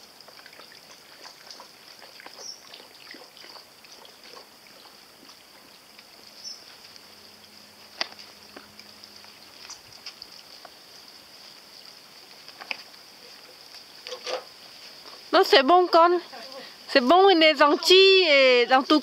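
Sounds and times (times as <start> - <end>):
small ticks and taps: 7.9 - 10.8, 12.4 - 13.0.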